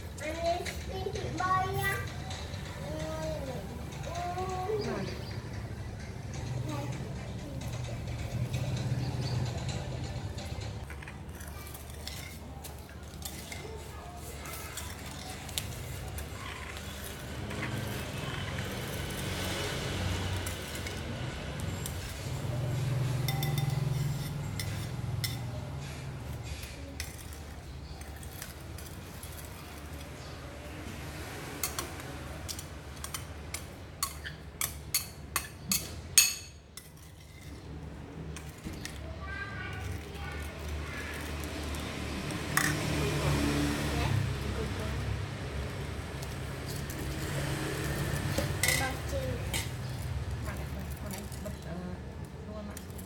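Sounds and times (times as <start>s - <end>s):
spoon clinking on ceramic bowl: 23.2s - 25.4s.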